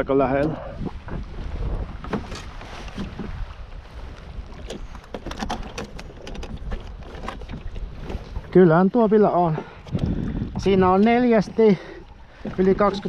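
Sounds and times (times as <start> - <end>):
wind rumbling on microphone: 0.0 - 13.0
fish handling clicks and knocks: 2.0 - 3.4, 4.5 - 8.6.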